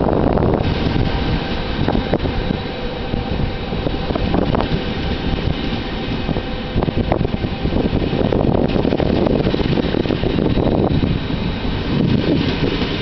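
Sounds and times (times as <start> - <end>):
train rumbling: 0.0 - 13.0
wind buffeting microphone: 0.0 - 13.0.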